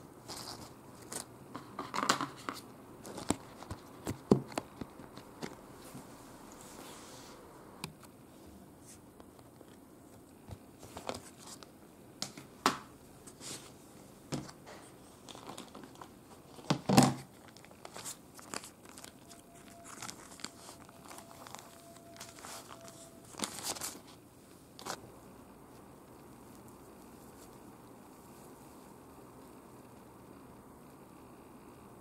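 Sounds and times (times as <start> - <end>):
baking paper crinkling: 0.2 - 5.6, 14.4 - 25.0.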